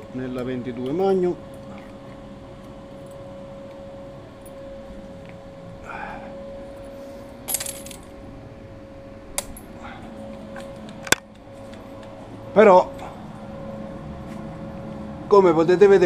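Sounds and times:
faint steady hum: 0.0s - 16.0s
small metal objects clinking: 7.5s - 8.1s.

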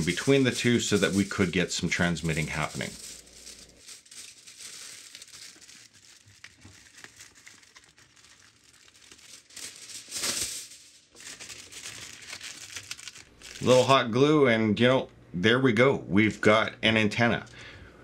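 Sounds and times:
aluminium foil crumpling: 0.0s - 13.9s.

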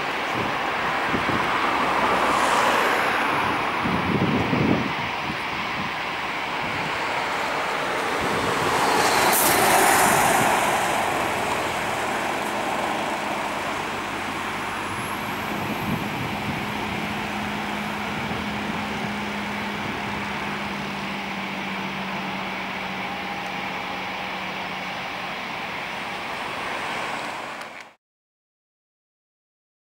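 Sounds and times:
jet airliner roar on takeoff: 0.0s - 28.0s.

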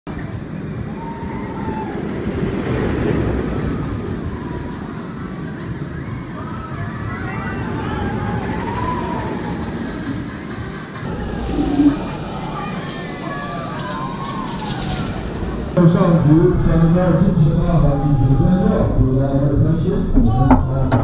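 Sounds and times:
roller coaster rumbling on track: 0.1s - 21.0s
riders screaming: 0.8s - 5.2s, 5.9s - 10.3s, 11.0s - 15.8s.

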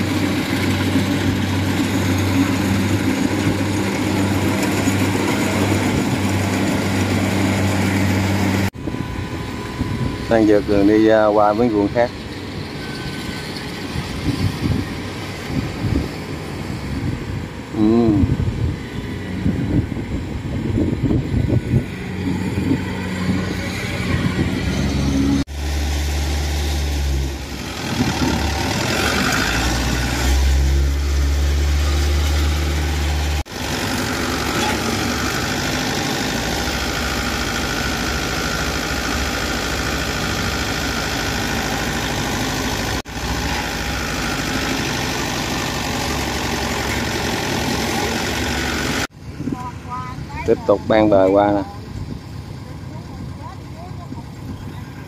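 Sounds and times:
combine harvester diesel engine: 0.0s - 55.0s
heavy low rumble: 14.0s - 25.5s.

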